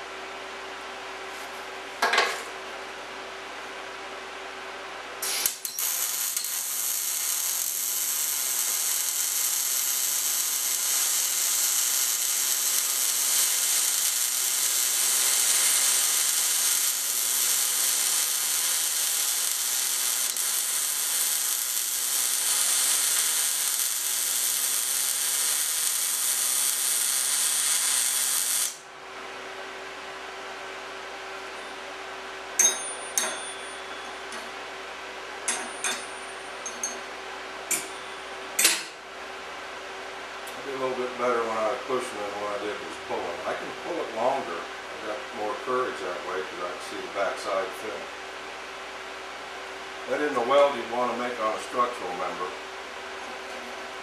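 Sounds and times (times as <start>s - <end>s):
welder arc hissing: 5.2s - 28.9s.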